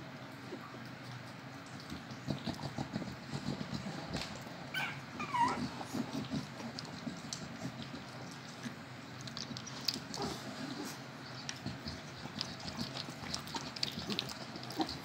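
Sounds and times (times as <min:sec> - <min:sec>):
puppy whimpering: 0:04.7 - 0:06.3.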